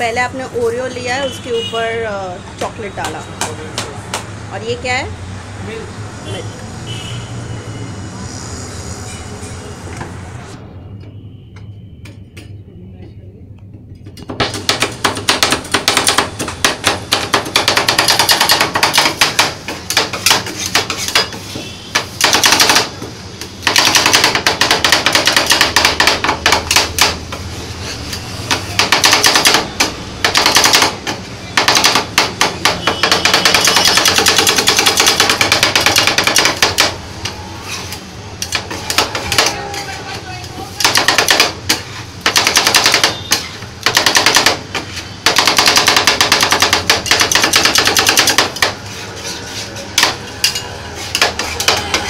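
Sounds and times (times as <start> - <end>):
spatulas chopping on metal plate: 14.2 - 52.0.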